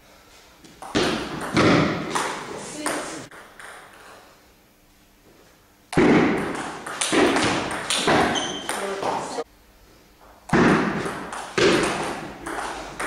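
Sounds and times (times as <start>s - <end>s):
table tennis ball knocking: 0.8s - 4.0s, 6.0s - 9.3s, 10.5s - 13.0s.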